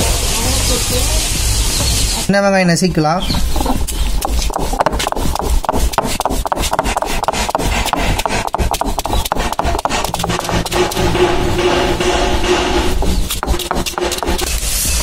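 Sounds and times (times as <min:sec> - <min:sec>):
onions crackling under stone: 0:03.4 - 0:06.9
stone scraping on stone: 0:03.4 - 0:15.0
background music: 0:07.8 - 0:15.0.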